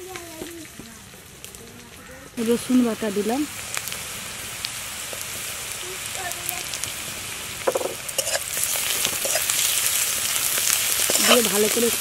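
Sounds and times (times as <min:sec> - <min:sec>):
food sizzling in hot oil: 0:02.4 - 0:12.0
spatula scraping pan: 0:07.7 - 0:10.0, 0:10.9 - 0:12.0.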